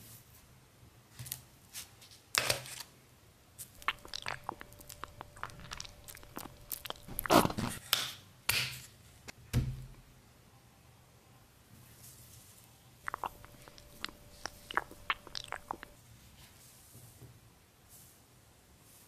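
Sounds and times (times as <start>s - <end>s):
lotion squelching: 3.7s - 7.8s, 13.1s - 16.0s.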